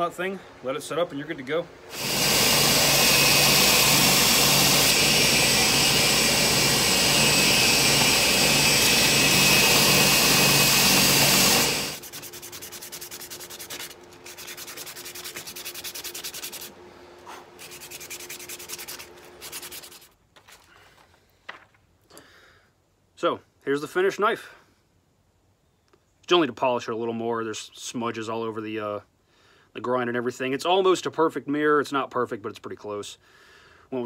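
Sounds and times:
belt grinder grinding hiss: 1.9 - 16.7
hand-sanding strokes: 1.9 - 20.2.

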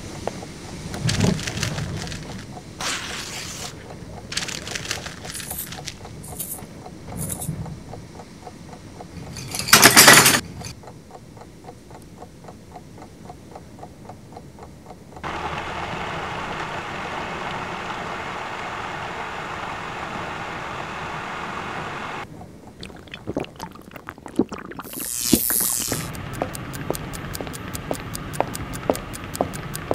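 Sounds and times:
soft steady ticking: 0.0 - 2.8, 3.7 - 9.7, 10.4 - 15.6, 22.2 - 29.9
electric food chopper running: 15.2 - 22.2, 24.9 - 28.0
loud burst of noise: 15.2 - 22.2.

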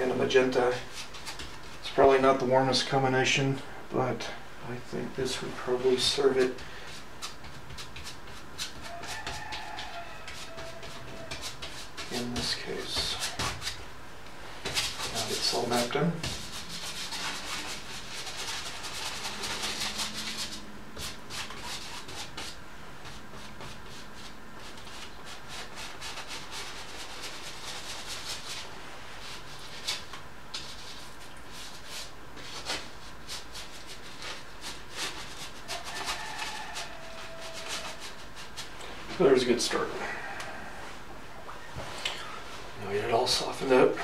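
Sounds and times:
bristle brush scrubbing paint: 5.2 - 40.3.

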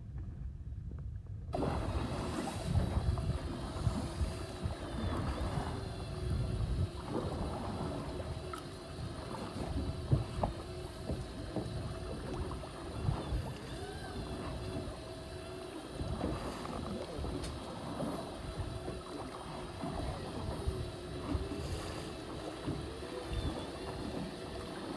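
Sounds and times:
water sloshing against a hull: 0.1 - 24.9
motor hum: 1.5 - 24.9.

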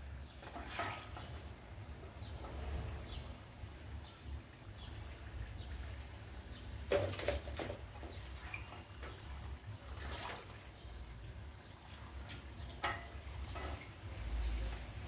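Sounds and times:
oil sizzling while deep-frying: 0.0 - 15.0
spatula clattering against pan: 12.4 - 14.0.

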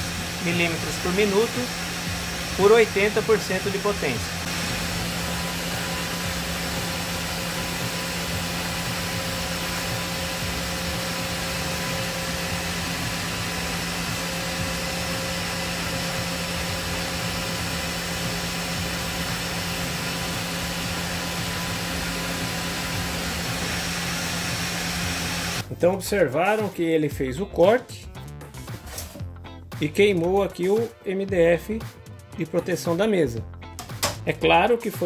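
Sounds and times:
fans rushing air: 0.0 - 25.6.

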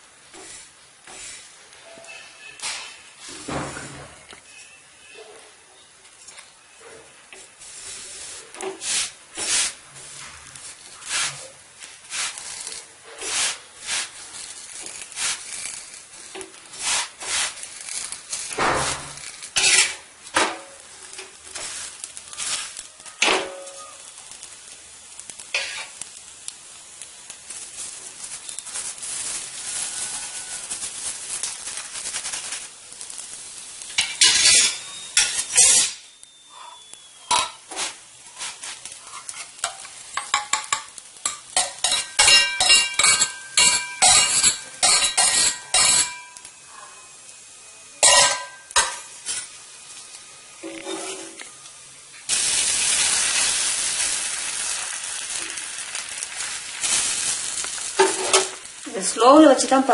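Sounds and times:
flatbread sizzling: 0.0 - 59.9
spatula scraping on iron pan: 7.6 - 10.3, 10.9 - 20.0, 25.5 - 26.0, 34.0 - 47.0, 50.6 - 51.4, 58.0 - 58.6.

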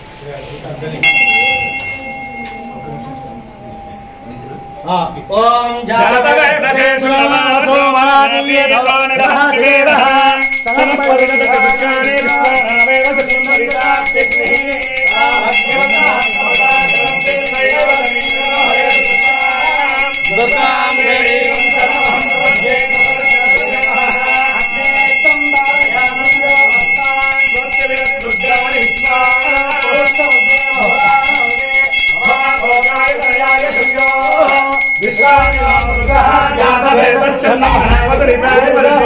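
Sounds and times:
brass bell ringing: 1.0 - 4.8, 10.0 - 36.9.

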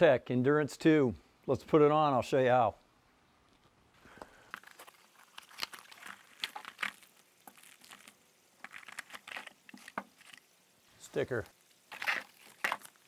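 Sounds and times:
crinkling packaging: 4.3 - 13.0.

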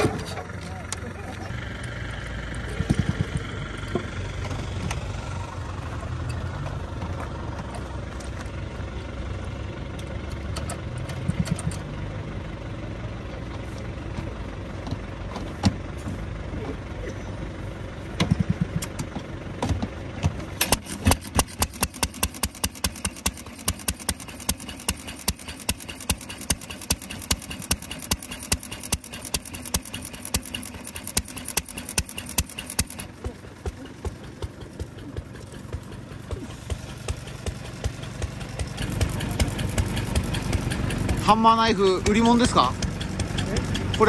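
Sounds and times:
stationary engine exhaust pops: 0.0 - 5.3, 9.9 - 11.9, 18.1 - 44.0
steady engine rumble: 0.0 - 44.0.

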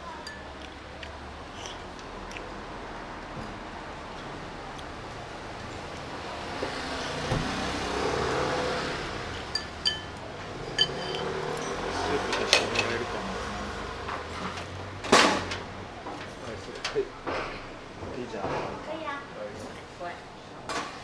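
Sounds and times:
vehicle passing: 0.6 - 16.7
spoon clinking ceramic bowl: 9.5 - 11.7.

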